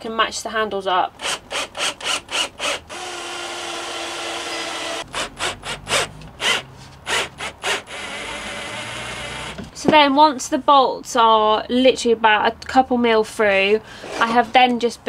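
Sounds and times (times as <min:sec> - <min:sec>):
cordless drill driving bolts: 0:01.2 - 0:09.7.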